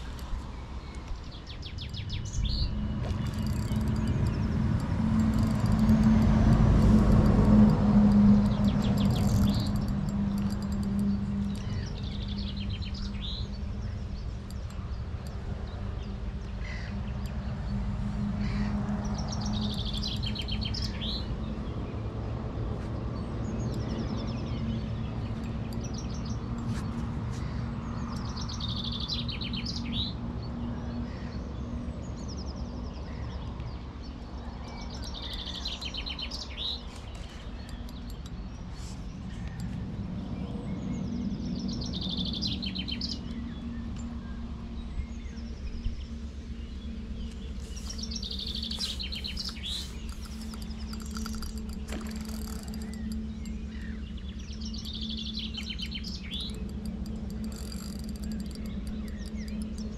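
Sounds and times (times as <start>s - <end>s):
steady low hum: 0.0s - 59.9s
songbird trilling: 18.4s - 21.4s, 46.8s - 59.9s.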